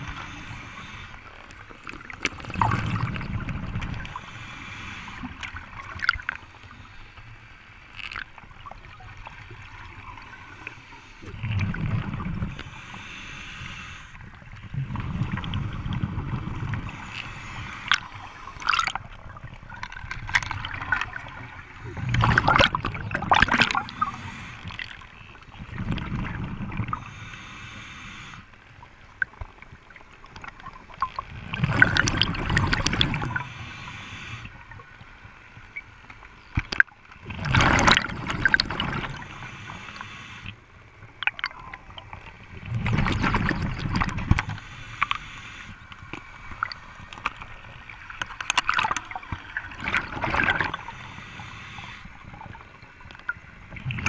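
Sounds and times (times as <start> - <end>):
bubbling exhaled air underwater: 0.0 - 6.4, 8.1 - 13.4, 14.2 - 27.3, 30.3 - 34.8, 36.7 - 40.6, 41.2 - 45.8, 46.5 - 54.0
regulator inhalation hiss: 0.1 - 1.3, 4.0 - 5.3, 12.5 - 14.2, 16.9 - 18.7, 23.8 - 24.7, 27.0 - 28.5, 33.3 - 34.5, 39.0 - 40.6, 44.4 - 45.9, 50.8 - 52.2.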